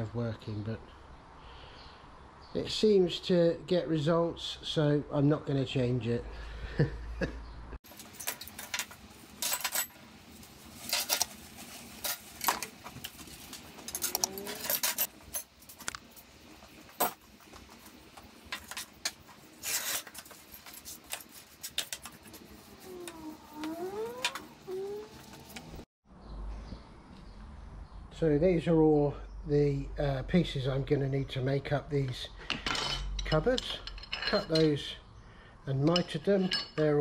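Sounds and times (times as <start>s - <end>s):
metal tools clattering on a workbench: 7.9s - 16.2s, 16.9s - 17.8s, 18.4s - 24.5s, 32.4s - 35.0s, 35.8s - 37.0s.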